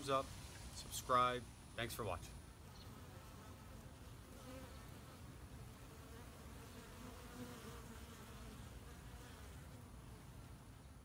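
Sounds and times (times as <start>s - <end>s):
bees buzzing: 2.5s - 11.0s.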